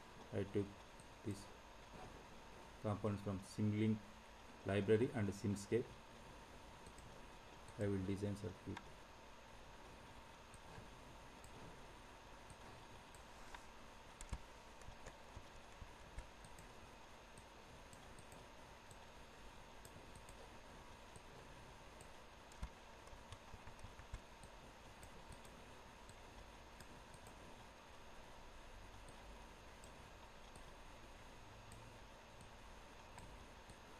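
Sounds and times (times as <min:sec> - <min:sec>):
recording hiss: 0:00.0 - 0:33.9
faint computer mouse clicks: 0:19.8 - 0:20.4.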